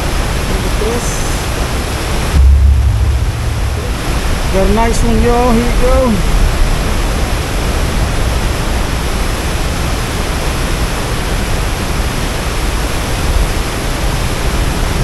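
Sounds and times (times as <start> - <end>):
whitewater rushing from spillway: 0.0 - 2.0.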